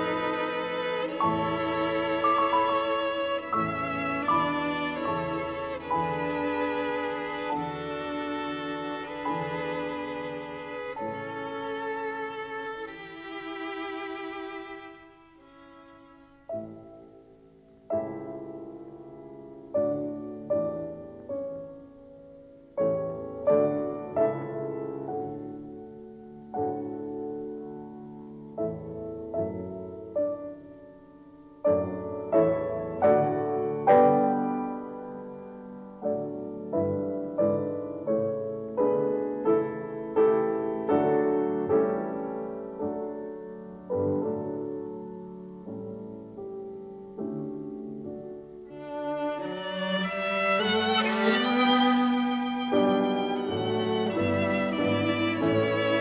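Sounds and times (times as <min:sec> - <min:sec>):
solo piano music: 0:00.0 - 0:56.0.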